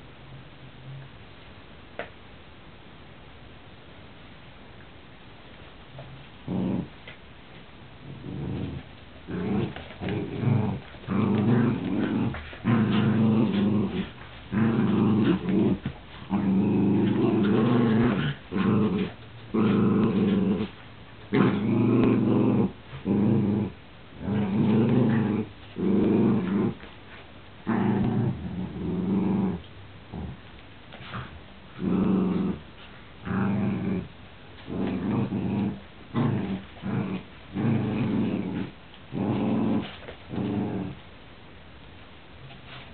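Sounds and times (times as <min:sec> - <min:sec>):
dogs growling in play: 0:06.0 - 0:07.2, 0:07.9 - 0:41.1.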